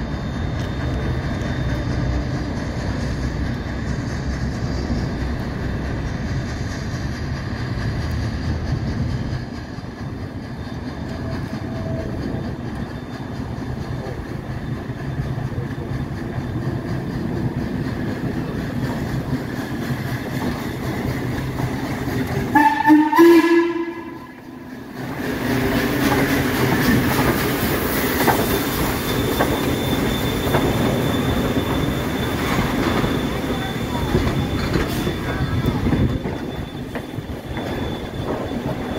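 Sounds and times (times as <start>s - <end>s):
steam locomotive rumbling: 0.0s - 38.9s
train cars rolling past: 0.0s - 38.9s
steam whistle blast: 22.4s - 24.5s.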